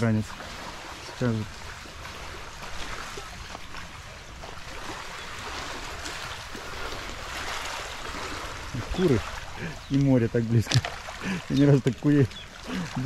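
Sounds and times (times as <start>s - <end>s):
sea waves washing on shore: 0.0s - 13.0s.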